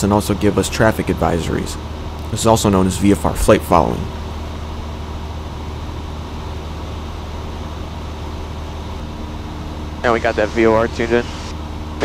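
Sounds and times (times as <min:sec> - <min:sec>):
propeller plane engine droning: 0:00.0 - 0:12.0.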